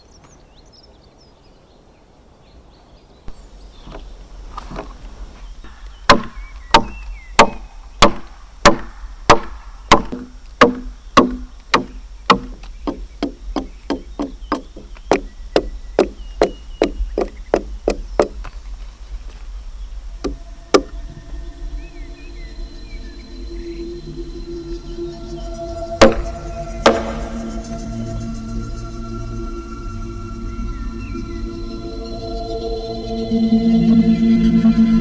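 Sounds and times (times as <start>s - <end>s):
birds chirping faintly: 0.0s - 35.0s
hand axe chopping log: 5.7s - 18.4s, 26.0s - 27.4s.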